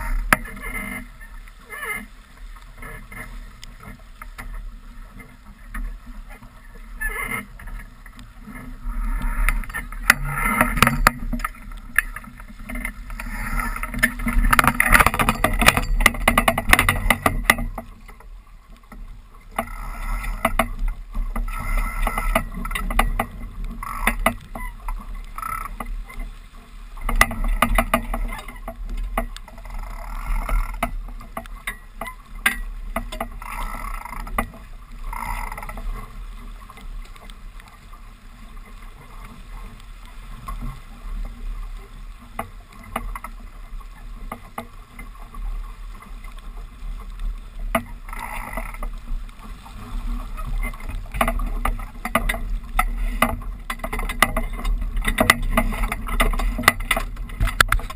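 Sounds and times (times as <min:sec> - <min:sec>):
water rushing along a hull: 0:00.0 - 0:57.9
waves slapping against boat: 0:00.0 - 0:57.9.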